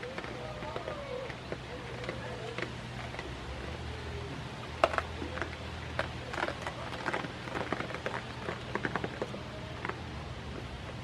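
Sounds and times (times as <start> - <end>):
goats crunching and chewing: 0.0 - 11.0.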